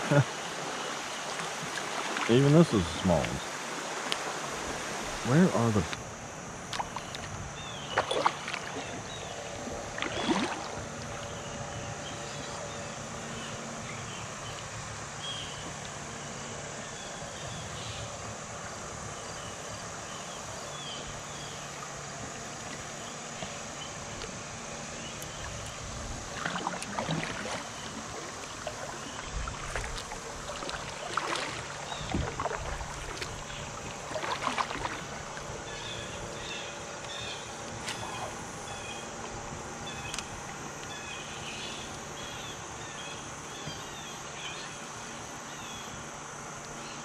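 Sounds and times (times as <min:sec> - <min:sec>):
water noise: 0:00.0 - 0:47.0
knocks and splashes: 0:07.9 - 0:09.1, 0:09.9 - 0:10.9, 0:25.6 - 0:35.5
wind noise: 0:32.0 - 0:33.4.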